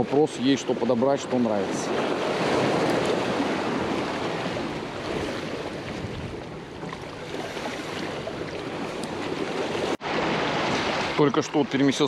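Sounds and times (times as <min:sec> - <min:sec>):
choppy sea water rushing: 0:00.0 - 0:12.0
wind on microphone: 0:01.8 - 0:11.2.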